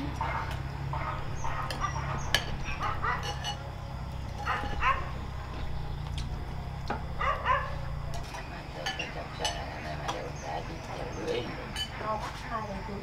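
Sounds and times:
dog barking: 0.1s - 3.4s, 4.4s - 5.2s, 7.2s - 7.9s
spoon clinking against bowl: 3.2s - 3.6s.

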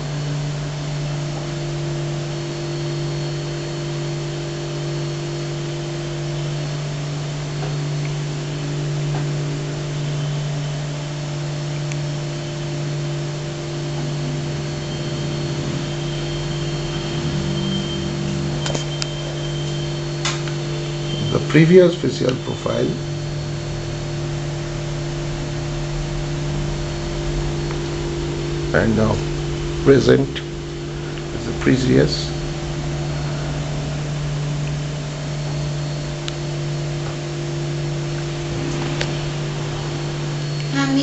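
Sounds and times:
low electrical hum: 0.0s - 41.0s
even hiss: 12.3s - 41.0s.

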